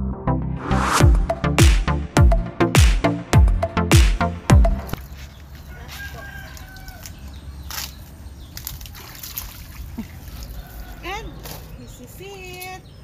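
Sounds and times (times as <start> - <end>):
rooster crowing: 5.6 - 7.3, 10.4 - 11.4
water splashing: 8.5 - 11.7.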